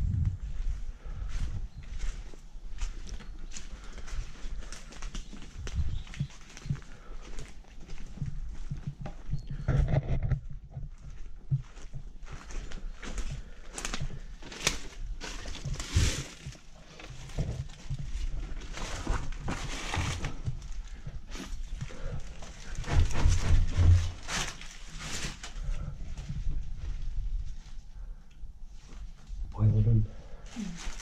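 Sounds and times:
footsteps on dead leaves: 0:00.3 - 0:08.8, 0:11.6 - 0:25.8, 0:30.6 - 0:31.0
heavy footsteps on stairs: 0:05.4 - 0:09.6.

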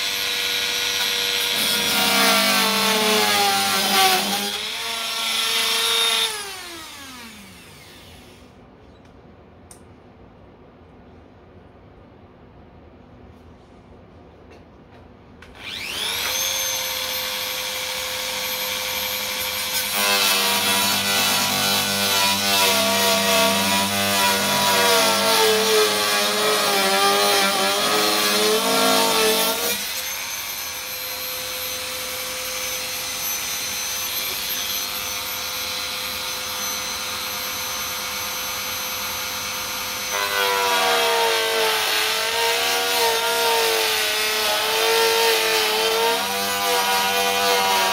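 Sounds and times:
rotary tool whining: 0:15.5 - 0:20.4.

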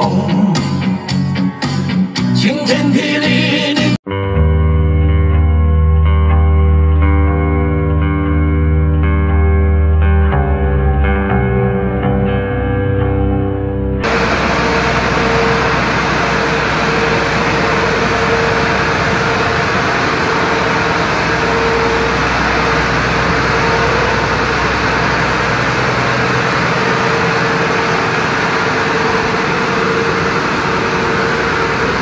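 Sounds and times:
machine humming steadily: 0:14.0 - 0:32.0.

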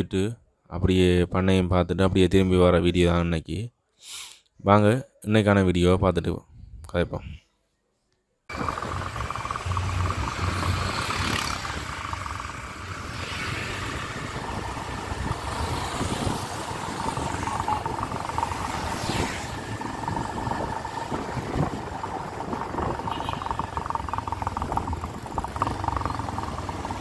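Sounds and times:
motorbike engine droning: 0:08.5 - 0:27.0
road and wind noise: 0:08.5 - 0:27.0
thin steady whine: 0:08.5 - 0:27.0.

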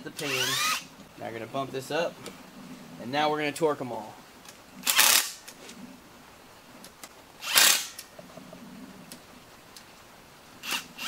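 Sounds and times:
impact wrench burst: 0:00.2 - 0:00.8, 0:04.8 - 0:05.4, 0:07.4 - 0:08.0.

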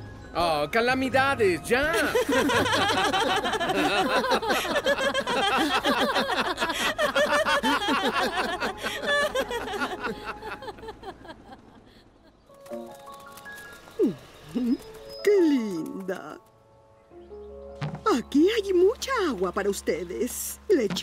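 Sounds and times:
cartoon voices laughing: 0:01.9 - 0:12.4.

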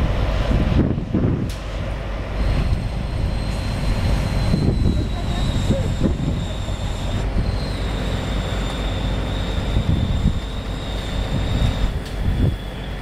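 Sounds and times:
heavy machinery low rumble: 0:00.0 - 0:13.0
machinery high-pitched whine: 0:01.7 - 0:13.0.

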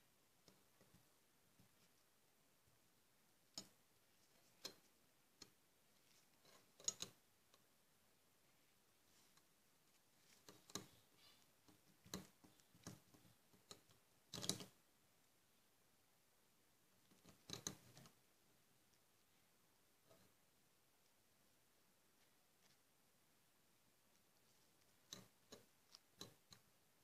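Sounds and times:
faint clicks and scrapes on metal: 0:00.4 - 0:02.1, 0:03.4 - 0:07.7, 0:08.5 - 0:14.8, 0:17.0 - 0:18.2, 0:18.9 - 0:20.4, 0:24.1 - 0:26.8.

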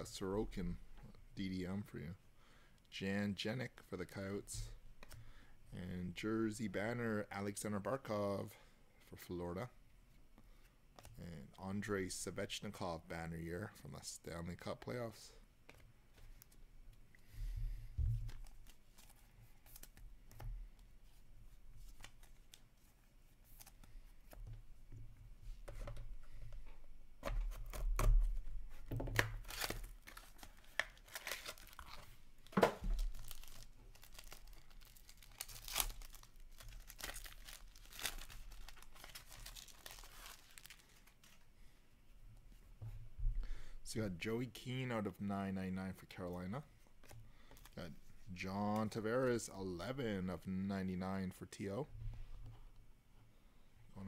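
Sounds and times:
card pack wrapper tearing and crinkling: 0:29.1 - 0:32.1, 0:32.8 - 0:41.4.

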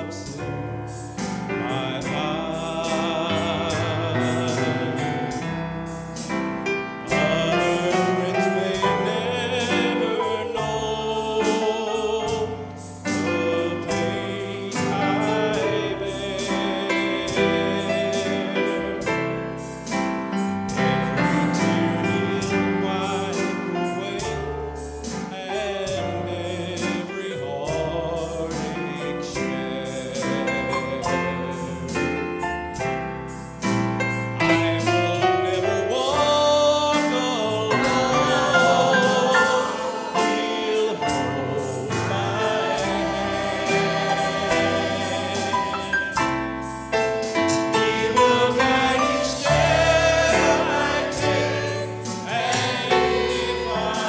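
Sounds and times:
choir singing a hymn: 0:00.0 - 0:54.0
instrumental accompaniment: 0:00.0 - 0:54.0
man singing into a microphone: 0:01.6 - 0:05.4, 0:07.1 - 0:19.3, 0:21.8 - 0:32.2, 0:34.5 - 0:46.1.

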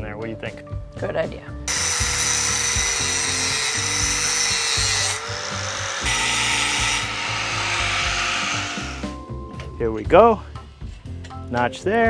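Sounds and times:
angle grinder cutting steel: 0:01.7 - 0:09.2.

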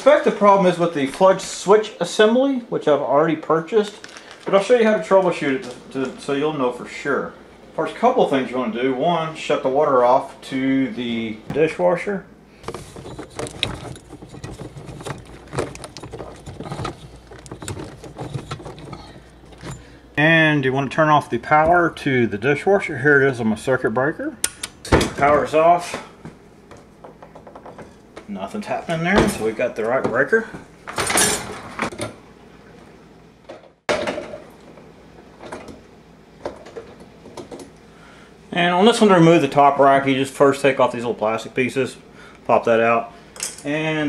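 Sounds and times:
low background hum: 0:00.0 - 0:44.0
objects knocking and clattering: 0:12.6 - 0:20.0, 0:26.7 - 0:28.3, 0:33.5 - 0:34.5.

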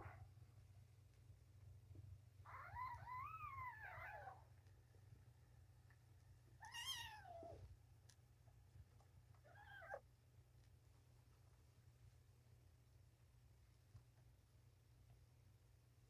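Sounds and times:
kitten mewing: 0:06.6 - 0:07.6, 0:09.4 - 0:10.0.

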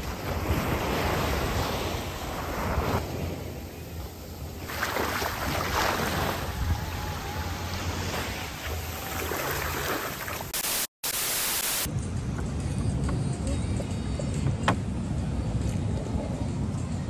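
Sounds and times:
small waves washing on sand: 0:00.0 - 0:10.7
loud static hiss: 0:10.5 - 0:11.9.

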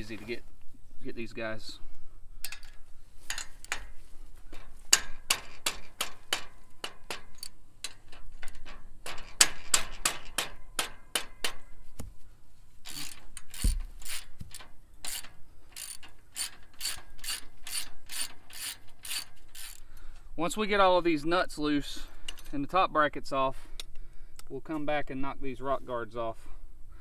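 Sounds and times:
ratchet wrench clicking: 0:12.9 - 0:19.8.

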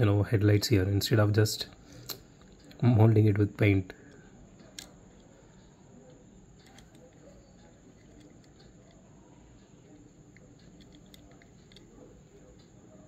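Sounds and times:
quiet room hiss: 0:00.0 - 0:13.0
toy car handling clicks: 0:04.1 - 0:05.3, 0:06.1 - 0:09.0, 0:09.9 - 0:12.7.

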